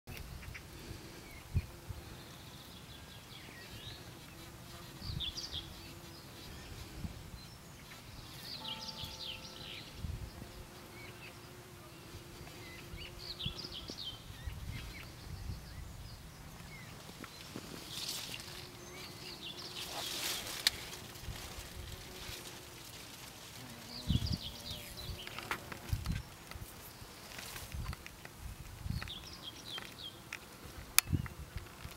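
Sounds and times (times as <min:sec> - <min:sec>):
bee buzzing in flight: 0:03.5 - 0:07.2, 0:08.3 - 0:15.2, 0:17.5 - 0:27.0.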